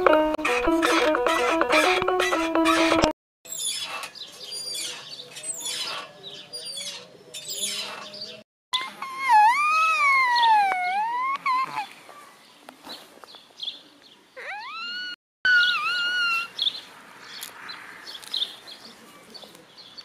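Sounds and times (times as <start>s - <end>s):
birds chirping: 3.5s - 20.0s
child blowing whistling squeals: 8.8s - 11.9s, 14.5s - 16.5s.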